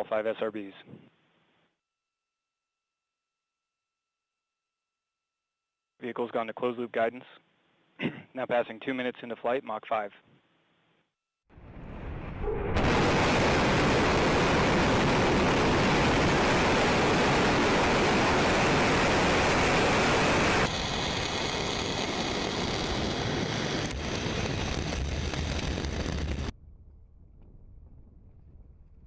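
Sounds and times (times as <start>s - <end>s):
rocket exhaust rumble: 11.6s - 29.0s.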